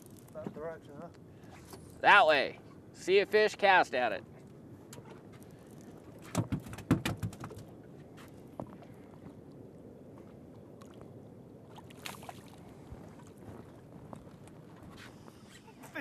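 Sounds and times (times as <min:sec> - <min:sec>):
water lapping against boat hull: 0:04.3 - 0:15.7
sharp knocks and clicks: 0:06.2 - 0:07.7.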